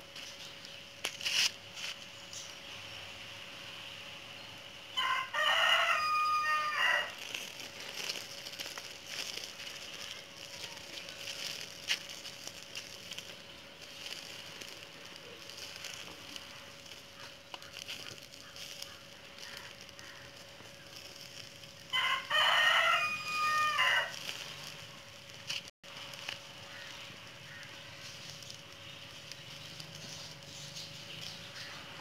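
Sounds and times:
wood fire crackling: 0:00.0 - 0:32.0
rooster crowing: 0:05.0 - 0:07.2, 0:21.9 - 0:24.3.

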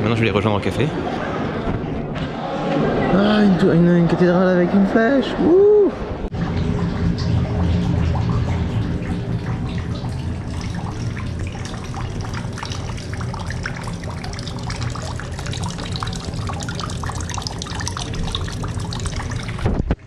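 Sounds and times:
fountain water trickling: 0:06.3 - 0:19.7.

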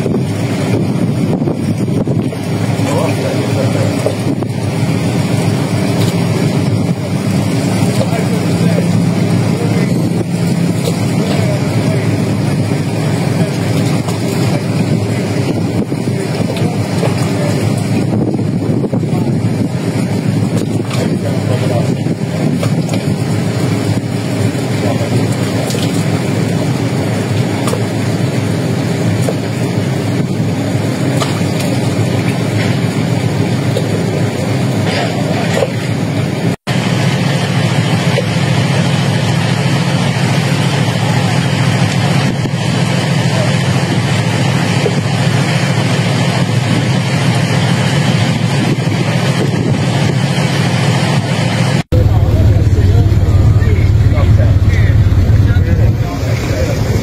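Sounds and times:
wind buffeting microphone: 0:00.0 - 0:31.0, 0:51.9 - 0:57.0
boat diesel engine rumble: 0:00.0 - 0:57.0.

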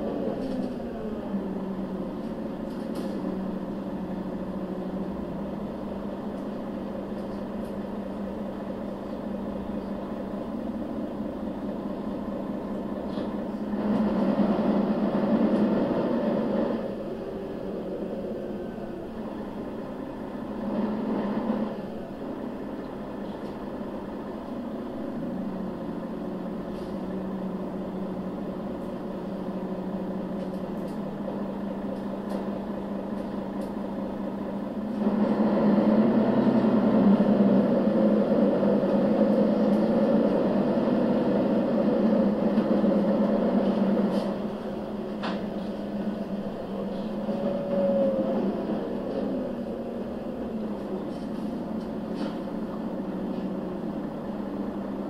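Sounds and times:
bus diesel engine humming: 0:00.0 - 0:55.0.

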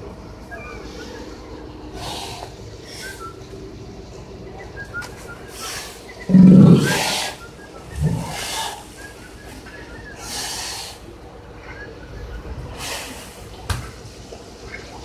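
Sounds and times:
soft hissing puffs: 0:05.5 - 0:07.4, 0:12.8 - 0:13.6
sea lion exhaling hard: 0:05.5 - 0:09.0.

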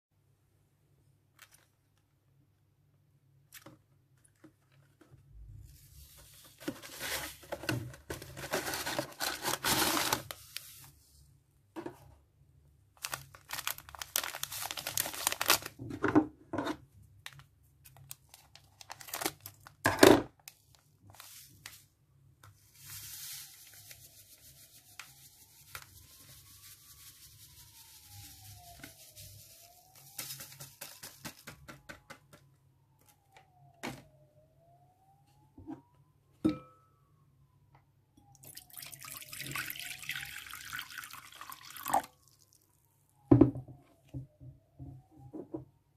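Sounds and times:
plastic tearing: 0:08.2 - 0:10.4, 0:13.0 - 0:15.8, 0:17.2 - 0:20.5
plastic sachet crinkling: 0:08.3 - 0:10.7, 0:13.0 - 0:15.8, 0:17.2 - 0:19.8
powder pouring with a hiss: 0:22.6 - 0:31.4.

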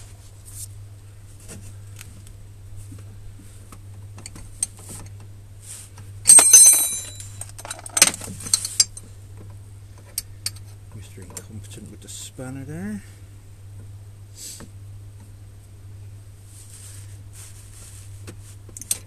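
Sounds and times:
metallic clatter: 0:06.3 - 0:09.0
spanner clinking on metal: 0:06.3 - 0:09.0.

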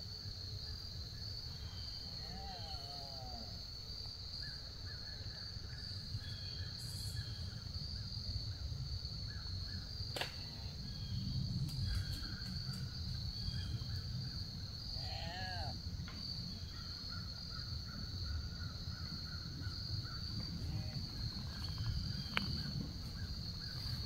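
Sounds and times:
faint bird chirps: 0:04.4 - 0:07.6
high-pitched insect drone: 0:04.4 - 0:24.0.

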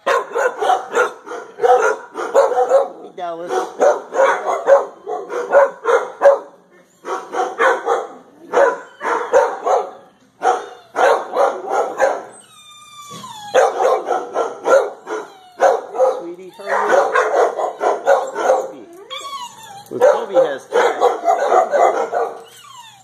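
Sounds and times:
dogs barking: 0:00.0 - 0:12.4, 0:13.4 - 0:18.9, 0:19.8 - 0:22.6
dog whining: 0:04.4 - 0:05.8, 0:06.8 - 0:23.0.

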